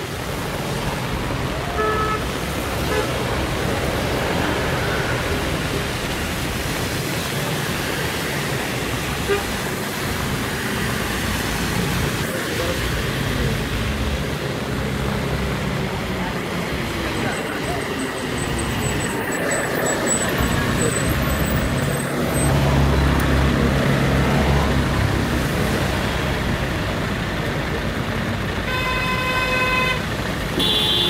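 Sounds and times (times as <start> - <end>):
bus engine humming: 0.0 - 31.0
rain: 0.0 - 31.0
tyres hissing on wet road: 0.0 - 31.0
car horn toot: 1.7 - 2.3, 28.7 - 30.0, 30.6 - 31.0.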